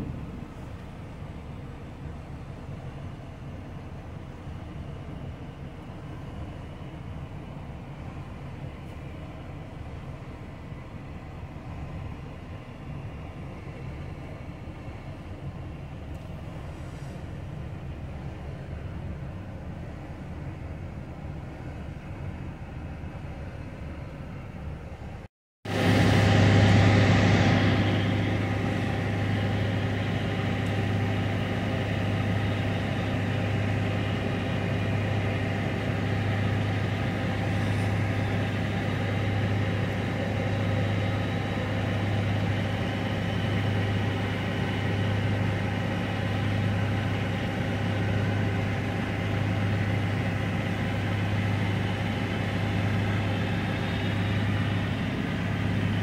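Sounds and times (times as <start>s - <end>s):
engine idling: 0.0s - 56.0s
rushing noise: 25.7s - 56.0s.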